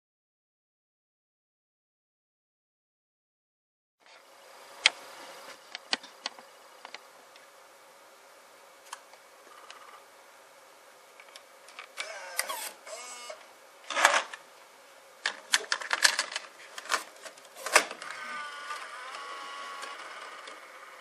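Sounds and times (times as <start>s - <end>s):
tape deck mechanism whir: 11.2s - 14.4s, 15.2s - 21.0s
eject mechanism whirring: 11.7s - 14.4s, 17.6s - 21.0s
cassette rattling and plastic clicks: 15.2s - 18.2s.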